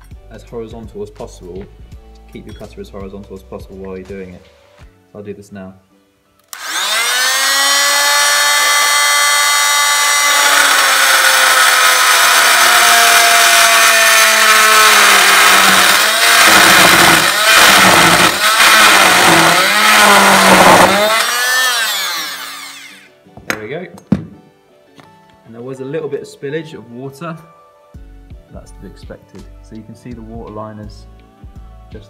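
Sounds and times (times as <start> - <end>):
multi-tool cutting copper pipe: 6.5 - 23.1.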